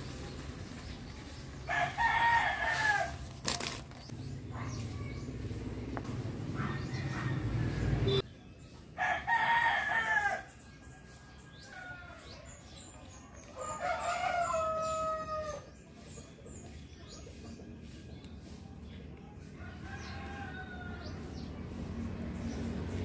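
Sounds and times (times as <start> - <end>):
roosters crowing: 1.6 - 3.7, 6.5 - 8.2, 8.9 - 12.8, 13.4 - 15.8, 19.4 - 21.8.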